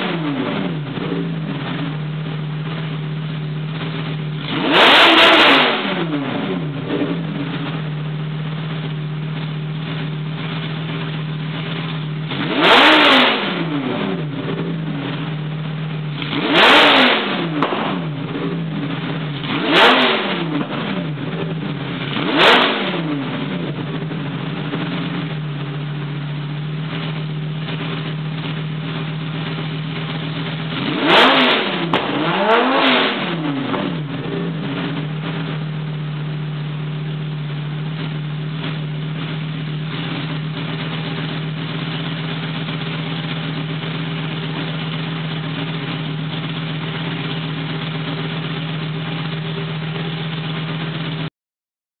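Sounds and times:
engine revving: 0.0 - 51.3
exhaust cracks: 0.0 - 51.3
sports car engine idling: 0.0 - 51.3.

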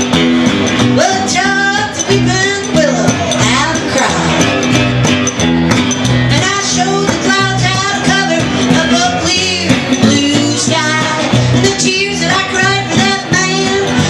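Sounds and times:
woman singing: 0.9 - 4.6, 6.3 - 14.0.

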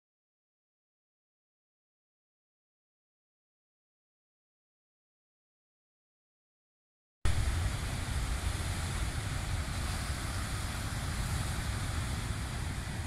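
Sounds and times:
surf breaking on rocky shore: 7.3 - 13.0
wind buffeting microphone: 7.3 - 13.0.

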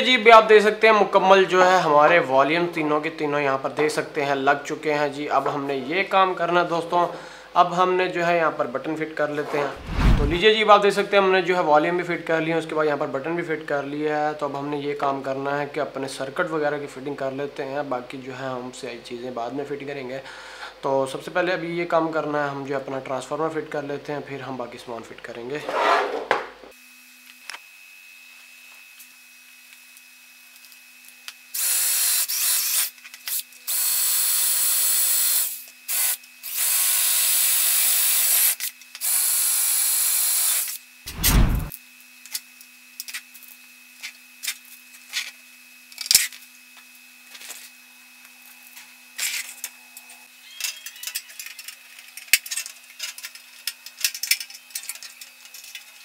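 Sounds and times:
electric drill boring metal: 31.5 - 40.8
heavy thump: 41.1 - 41.7.

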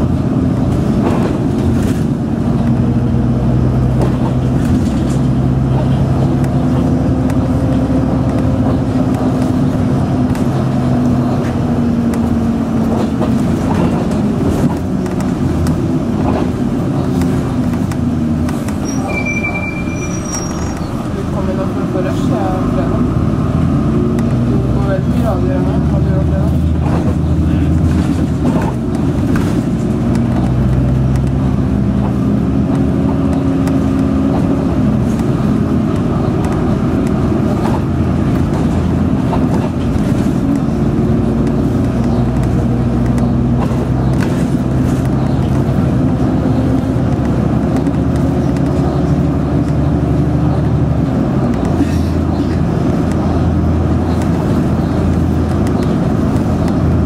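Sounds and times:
bus engine humming: 0.0 - 57.0
road noise inside bus: 0.0 - 57.0.

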